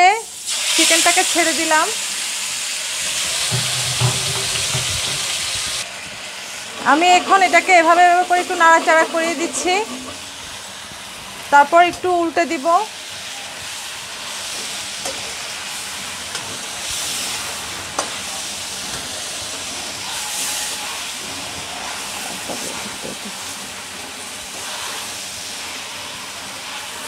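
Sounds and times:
chicken sizzling in oil: 0:00.0 - 0:27.0
spatula knocking against pan: 0:03.5 - 0:05.3.

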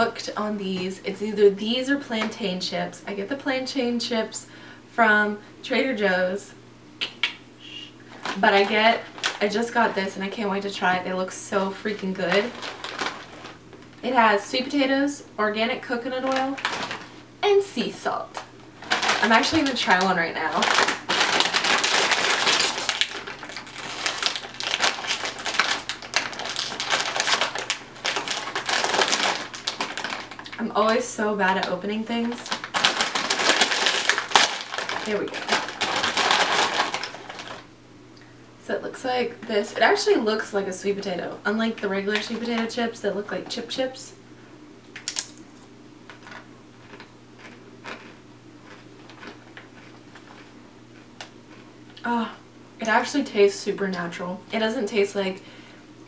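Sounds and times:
low steady hum: 0:00.0 - 0:56.0
chip bag crinkling: 0:08.0 - 0:14.0, 0:16.0 - 0:37.7, 0:41.7 - 0:42.8, 0:45.0 - 0:51.7.

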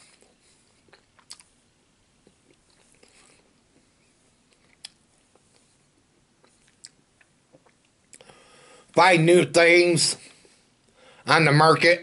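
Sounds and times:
man chewing food: 0:00.0 - 0:08.5.

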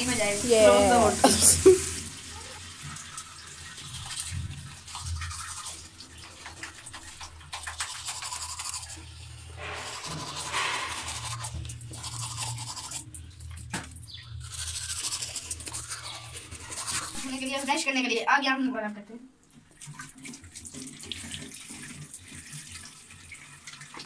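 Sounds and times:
toothbrush scrubbing teeth: 0:00.2 - 0:18.0.

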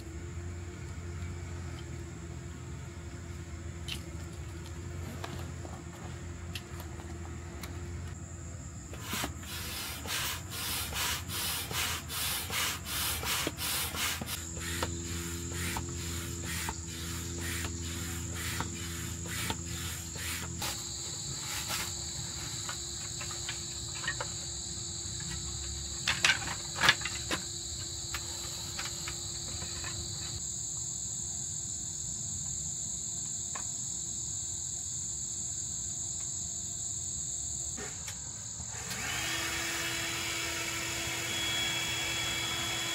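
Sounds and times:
insects trilling: 0:01.3 - 0:42.9
rhythmic rubbing scraping: 0:09.0 - 0:24.2.

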